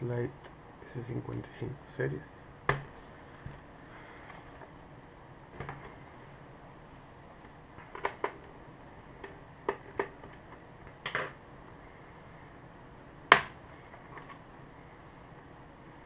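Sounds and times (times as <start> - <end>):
sharp clicks and knocks of plastic: 7.8 - 8.5, 9.2 - 11.4.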